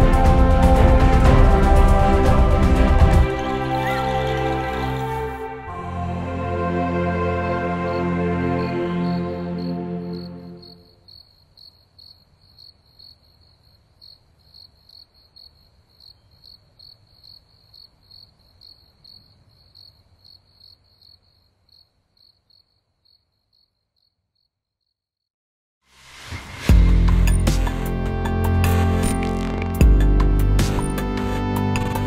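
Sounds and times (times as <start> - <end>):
background music: 0.0 - 10.9, 26.1 - 32.0
cricket chirping: 8.0 - 25.0.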